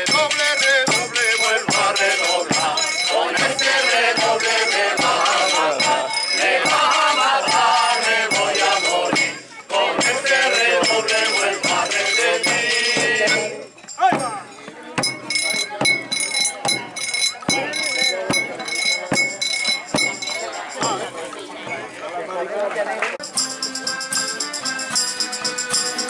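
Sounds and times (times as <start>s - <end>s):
group singing: 0.0s - 13.7s
hand percussion steady beat: 0.0s - 22.0s, 23.2s - 26.0s.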